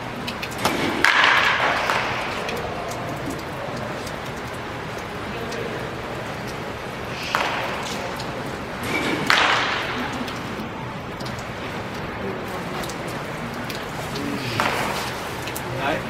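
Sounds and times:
baseball bat hitting ball: 0.6s - 2.8s, 7.1s - 10.1s, 14.6s - 15.0s
murmur of voices: 0.9s - 16.0s.

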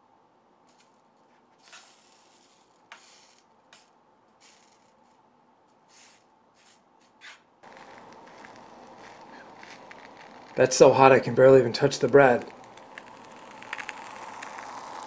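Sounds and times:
faint steady hiss: 0.0s - 15.0s
scrapes and handling noises: 0.7s - 10.6s.

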